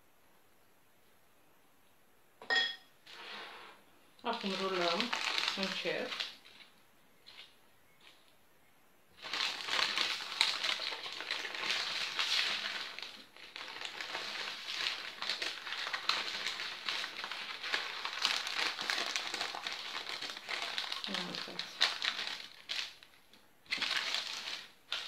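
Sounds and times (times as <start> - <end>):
baking paper crinkling: 4.2 - 8.4, 9.2 - 25.0.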